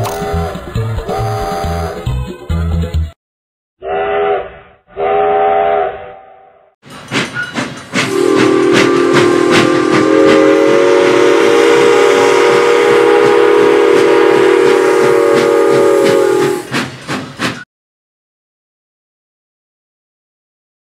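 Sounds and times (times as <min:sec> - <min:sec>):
steam locomotive chuffing: 0:06.8 - 0:17.7
steam locomotive chime whistle: 0:07.4 - 0:16.8.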